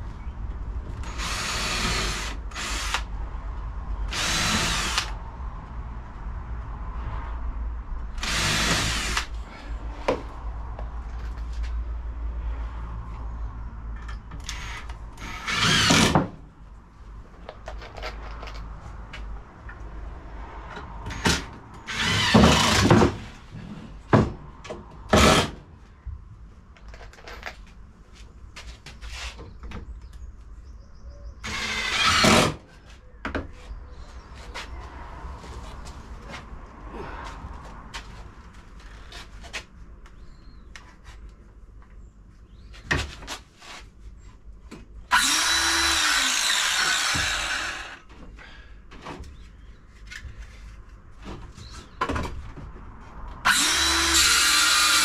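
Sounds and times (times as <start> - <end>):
cordless drill driving screws: 1.0 - 3.1, 4.1 - 5.2, 8.2 - 9.3, 14.4 - 16.2, 21.1 - 23.0, 31.4 - 32.6, 45.1 - 48.0, 53.5 - 55.0
knocks and handling of wood: 10.0 - 11.8, 20.7 - 25.6, 42.7 - 43.9, 46.4 - 53.6.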